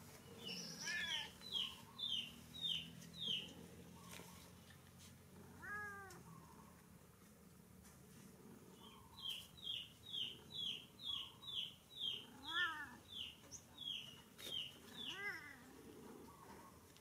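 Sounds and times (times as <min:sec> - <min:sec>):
bird chirping: 0:00.2 - 0:04.5, 0:08.8 - 0:15.4
cat meowing: 0:00.8 - 0:01.4, 0:05.5 - 0:06.3, 0:12.3 - 0:13.0.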